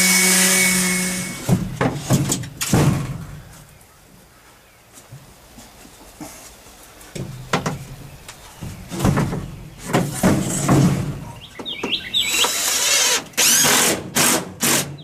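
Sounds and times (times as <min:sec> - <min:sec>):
plywood knocking and scraping on wood: 0:01.5 - 0:03.3, 0:08.5 - 0:12.6.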